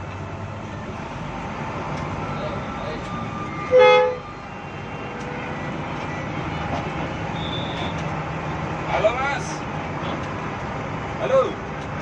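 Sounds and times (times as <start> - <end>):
bus cabin noise: 0.0 - 12.0
bus diesel engine running: 0.0 - 12.0
bus horn blast: 3.6 - 4.3.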